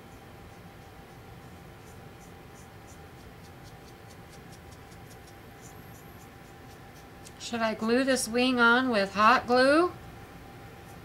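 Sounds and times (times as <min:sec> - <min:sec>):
low room hum: 0:00.0 - 0:11.0
paintbrush scratching: 0:00.5 - 0:07.3.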